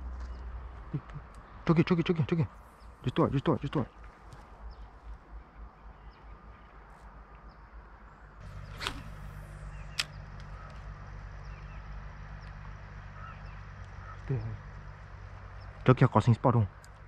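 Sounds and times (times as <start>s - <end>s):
fishing rod swish: 8.5s - 9.5s
fishing line hissing out: 8.5s - 9.6s
sharp click: 9.9s - 10.5s.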